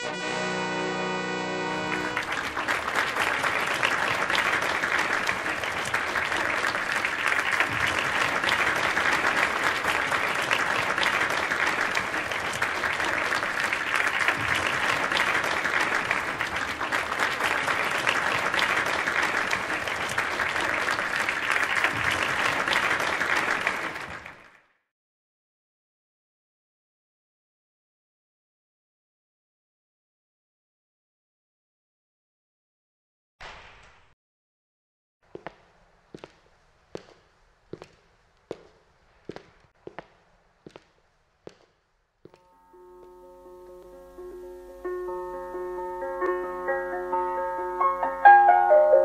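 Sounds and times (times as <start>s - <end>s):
audience applauding: 1.5s - 24.7s.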